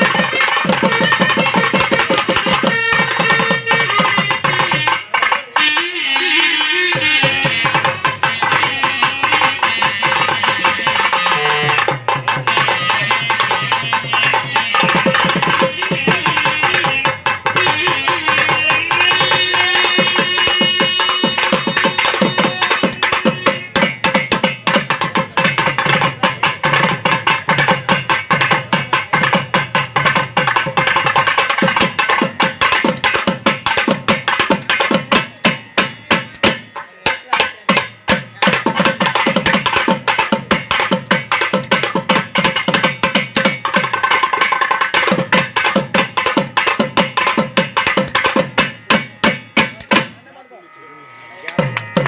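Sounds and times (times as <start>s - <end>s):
reed pipes playing melody: 0.0s - 23.8s, 49.8s - 52.0s
fast dense drumming: 6.8s - 50.1s.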